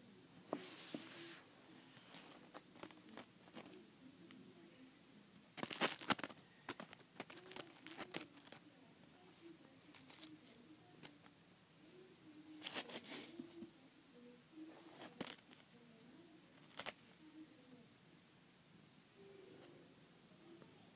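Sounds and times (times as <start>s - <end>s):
crinkling rustling: 0.6s - 3.8s, 5.6s - 8.7s, 9.7s - 11.3s, 14.7s - 15.7s, 16.6s - 17.1s.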